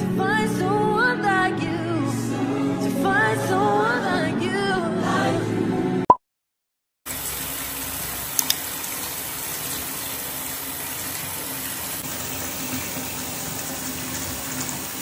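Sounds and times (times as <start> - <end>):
tap water splashing into bathtub: 8.3 - 15.0
sharp clicks: 8.4 - 8.6.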